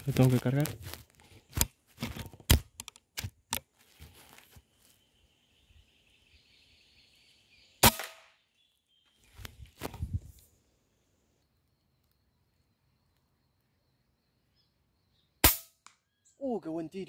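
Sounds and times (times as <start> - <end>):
rifle shot: 7.8 - 8.3, 15.4 - 15.8.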